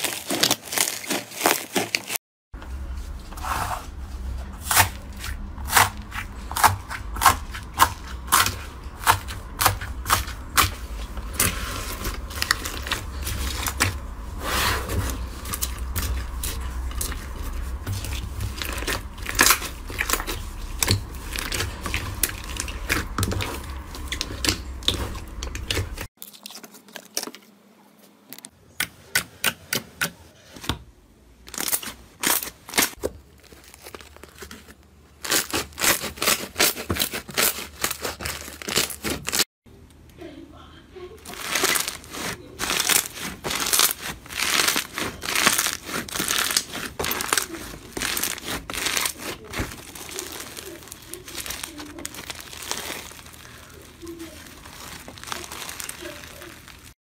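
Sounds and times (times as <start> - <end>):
crunchy slime crackling: 0.0 - 2.2, 3.4 - 27.6, 31.4 - 39.5, 41.2 - 57.0.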